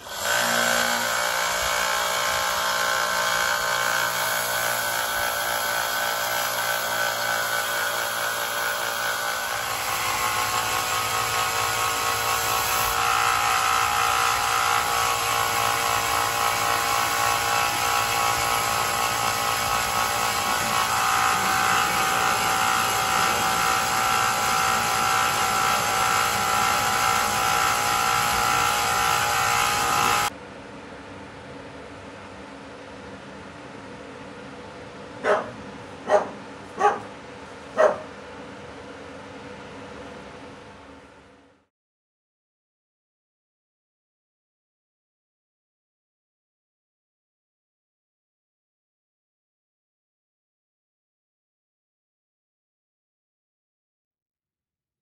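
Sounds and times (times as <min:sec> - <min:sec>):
belt grinder whining: 0:00.0 - 0:30.3.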